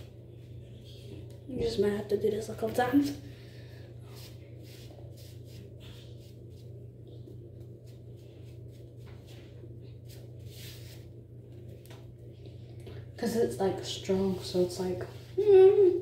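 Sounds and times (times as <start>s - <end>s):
steady low hum: 0.0s - 16.0s
paper towel swishing on face: 4.0s - 12.1s.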